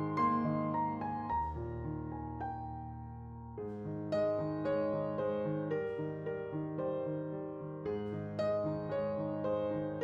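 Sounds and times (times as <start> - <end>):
background piano music: 0.0 - 10.0.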